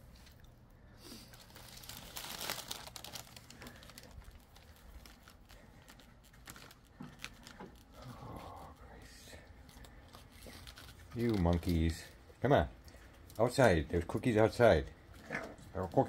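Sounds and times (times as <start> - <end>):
plastic wrapper crinkling: 1.2 - 12.2.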